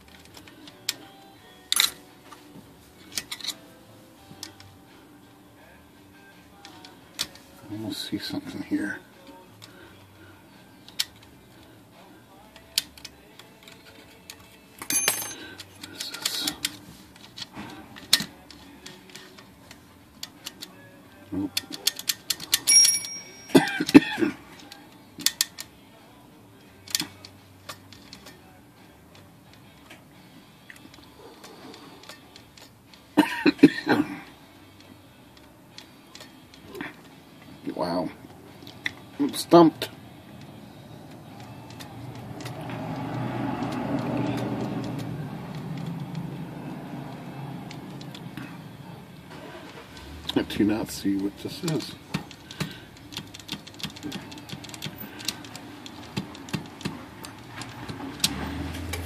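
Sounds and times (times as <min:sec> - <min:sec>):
light clicks of metal parts: 0:21.4 - 0:25.7, 0:26.8 - 0:28.4, 0:30.6 - 0:33.0, 0:34.8 - 0:37.5, 0:41.1 - 0:46.3, 0:47.1 - 0:48.7, 0:49.7 - 0:59.0
typewriter bell ding: 0:22.7 - 0:23.7
vehicle engine rumble passing: 0:40.2 - 0:51.0, 0:54.9 - 0:59.0
typewriter carriage clicking: 0:51.6 - 0:59.0.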